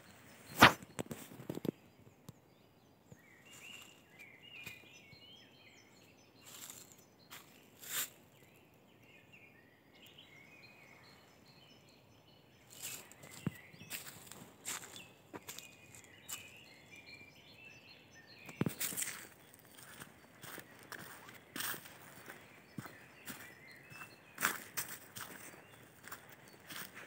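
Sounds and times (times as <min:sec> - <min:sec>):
songbirds singing: 0:00.0 - 0:27.0
sharp snap underfoot: 0:00.5 - 0:01.6
footsteps on dry leaves: 0:06.4 - 0:08.2, 0:12.7 - 0:16.6, 0:18.6 - 0:27.0.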